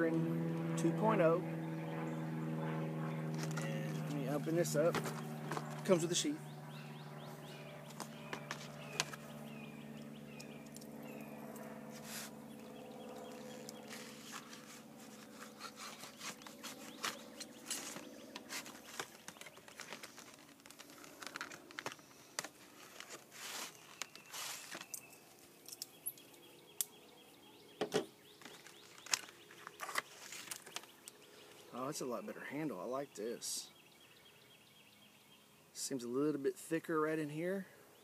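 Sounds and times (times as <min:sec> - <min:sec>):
low steady hum: 0:00.0 - 0:36.3
knife sawing through plastic: 0:13.4 - 0:20.4.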